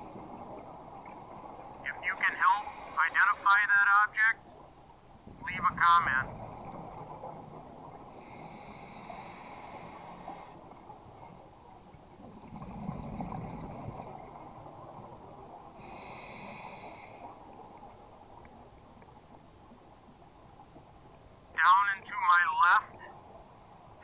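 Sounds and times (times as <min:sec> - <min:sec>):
regulator hissing inhale: 0:08.1 - 0:10.6, 0:15.8 - 0:17.4
exhaled bubbles rumbling: 0:11.8 - 0:16.0.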